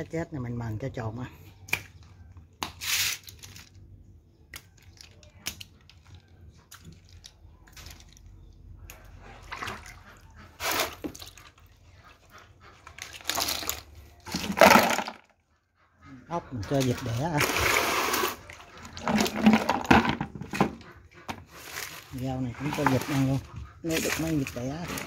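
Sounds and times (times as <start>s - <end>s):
water splashing: 9.3s - 11.8s.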